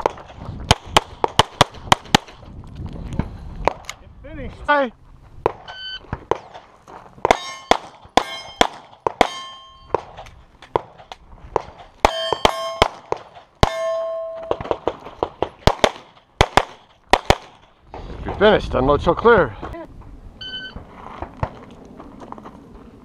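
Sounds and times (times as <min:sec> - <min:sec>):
rapid pistol fire: 0:07.2 - 0:10.1, 0:14.5 - 0:17.6
steel targets ringing: 0:07.3 - 0:10.0, 0:12.1 - 0:13.0, 0:13.6 - 0:14.7
shot timer beep: 0:20.4 - 0:20.8.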